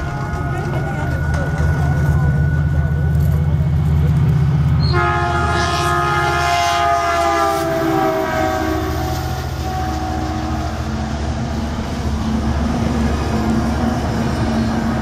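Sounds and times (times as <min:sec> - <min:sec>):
diesel locomotive engine rumble: 0:00.0 - 0:15.0
train air horn: 0:04.8 - 0:11.0.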